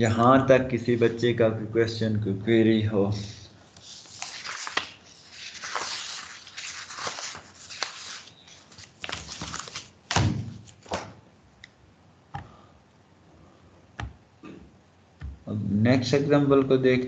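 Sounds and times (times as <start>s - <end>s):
rustling handling noises: 3.1s - 11.2s.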